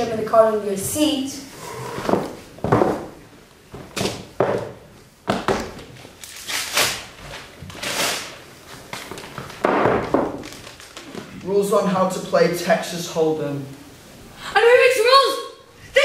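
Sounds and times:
rustling: 5.8 - 11.9.

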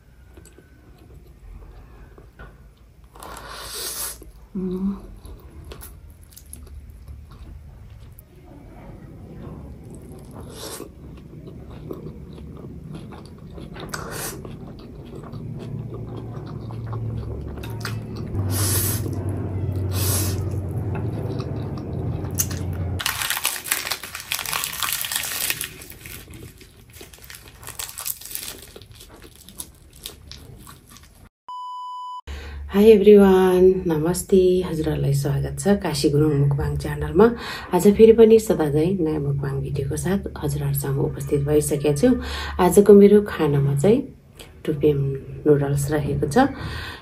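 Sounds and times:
noodles being slurped and chewed: 9.8 - 19.2
wet mouth noises: 13.1 - 19.2
crisp crunching bites: 21.2 - 31.2.

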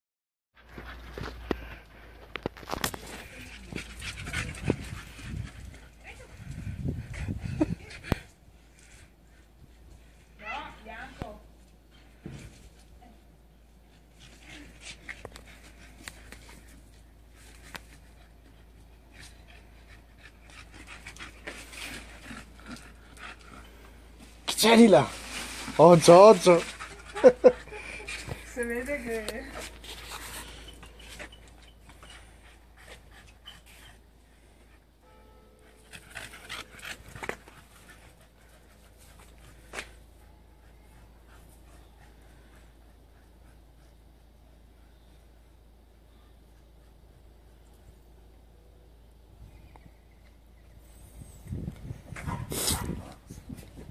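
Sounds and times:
dog panting and sniffing: 0.6 - 9.8, 13.8 - 24.4, 26.3 - 34.9, 35.6 - 45.0.

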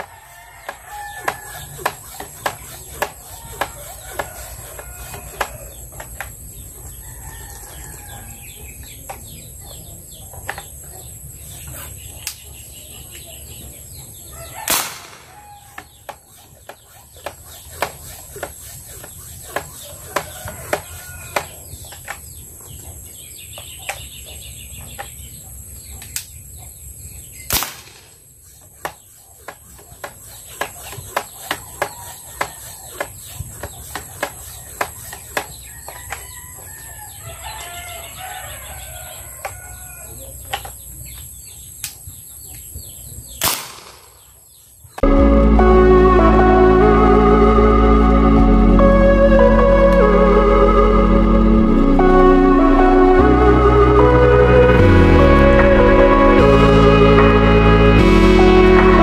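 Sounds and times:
roosters crowing: 0.0 - 9.0, 14.0 - 22.1, 30.8 - 40.4
sharp bangs: 14.6 - 15.4.

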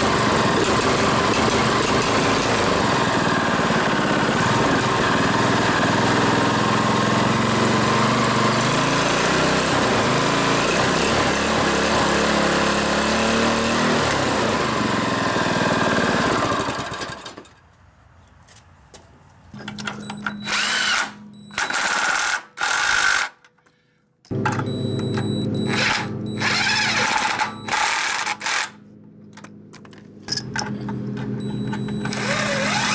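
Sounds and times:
small go-kart engine running: 0.0 - 17.5, 25.7 - 28.8, 31.4 - 32.9.

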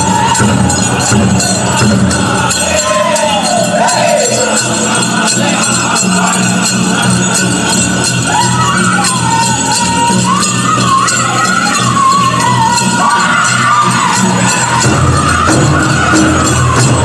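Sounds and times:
group singing in high voices: 0.0 - 17.0
jingling bells: 0.0 - 17.0
steady drumbeat: 0.0 - 17.0.

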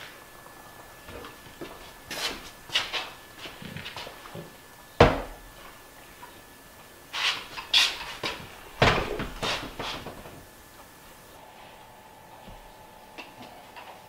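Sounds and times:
wooden cabinet knocks and clunks: 4.4 - 5.4, 8.8 - 10.4.

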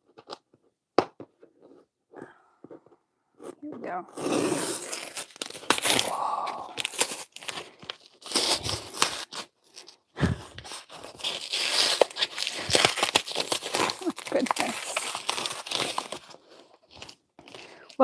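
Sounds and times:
packing tape tearing off box: 4.1 - 17.7.

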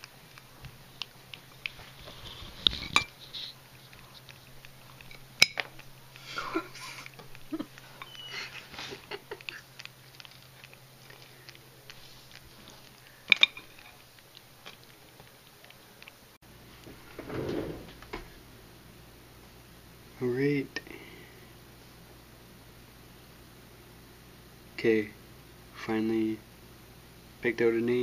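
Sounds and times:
puppy eating noises: 0.0 - 16.9.

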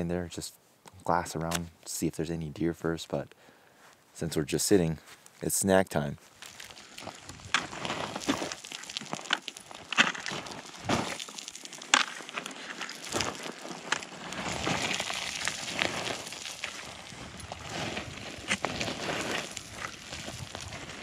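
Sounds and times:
plastic wrapper crinkling: 6.3 - 21.0.

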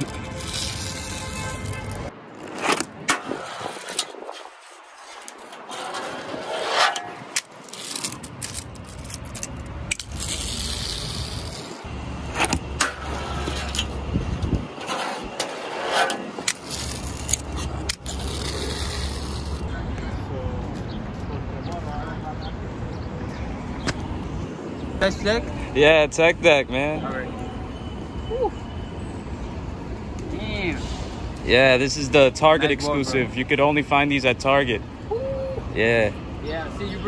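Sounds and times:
fingerboard rolling on concrete: 14.8 - 19.6.

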